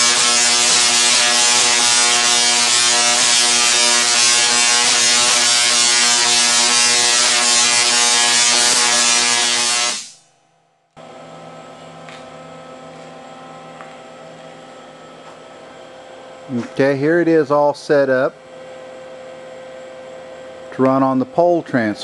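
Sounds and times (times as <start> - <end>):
tesla coil harsh buzz: 0.0 - 10.3.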